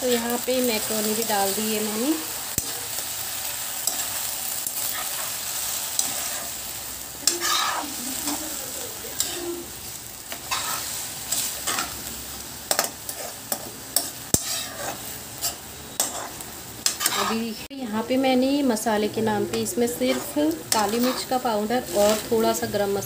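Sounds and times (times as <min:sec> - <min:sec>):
food sizzling in hot oil: 0:00.0 - 0:23.0
metal spatula scraping pan: 0:07.2 - 0:12.0, 0:12.7 - 0:17.5, 0:19.5 - 0:22.6.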